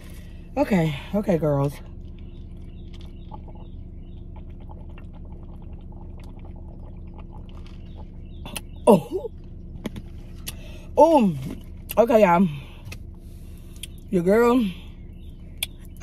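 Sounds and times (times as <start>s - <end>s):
car hum: 0.0s - 16.0s
person gulping and slurping: 1.9s - 8.7s.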